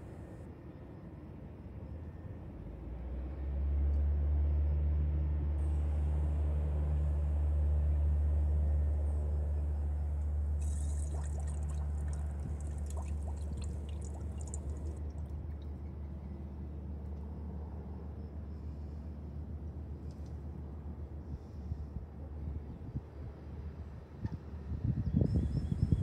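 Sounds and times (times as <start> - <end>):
fine crackling bubbles: 10.6 - 15.6
fluid gurgling through hose: 10.6 - 15.7.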